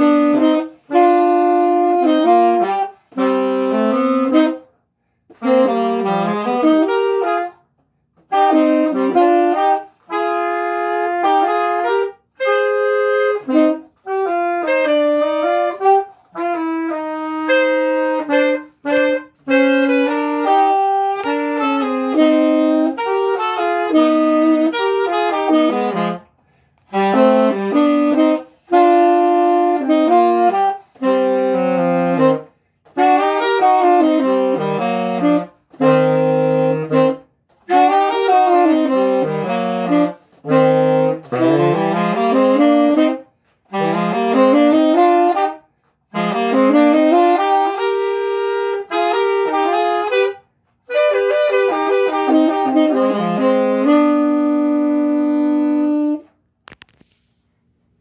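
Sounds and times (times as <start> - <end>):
saxophones playing: 0.0 - 57.2
quick breaths: 26.3 - 26.9.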